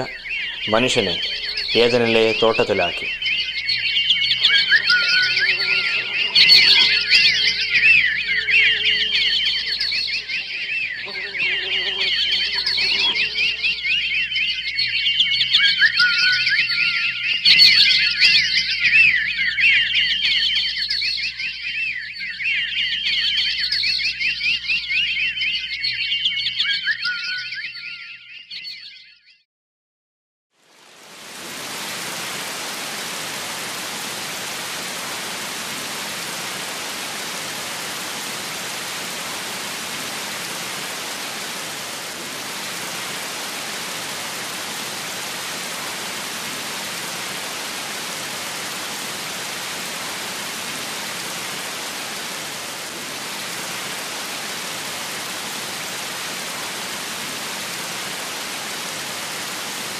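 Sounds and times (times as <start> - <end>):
waterfall rushing: 0.0 - 3.3, 4.2 - 10.6, 30.8 - 59.9.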